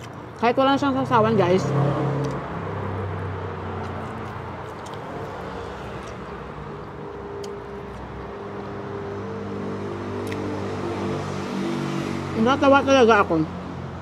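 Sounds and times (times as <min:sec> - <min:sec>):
person chewing food: 0:03.2 - 0:09.2, 0:10.1 - 0:10.7
sharp mouth clicks: 0:10.2 - 0:10.5.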